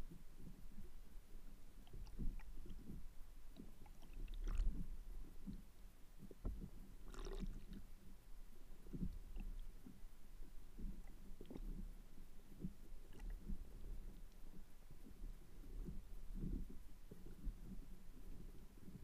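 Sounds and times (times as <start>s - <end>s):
muffled underwater rumble: 0.0s - 19.0s
bubbling crackles: 7.1s - 7.8s.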